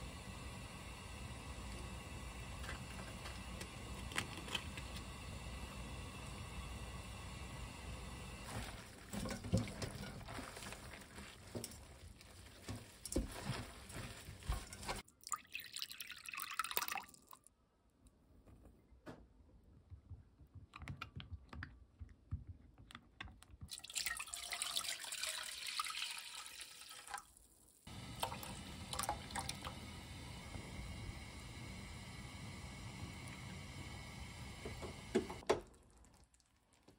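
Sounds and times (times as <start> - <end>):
broth bubbling in a pan: 0.0 - 11.8, 27.8 - 36.9.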